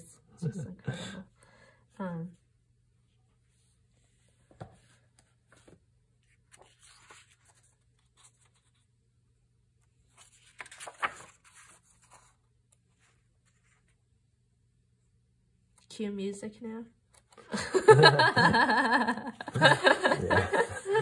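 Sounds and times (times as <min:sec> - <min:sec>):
book pages turning: 0:04.5 - 0:08.9, 0:09.8 - 0:14.0.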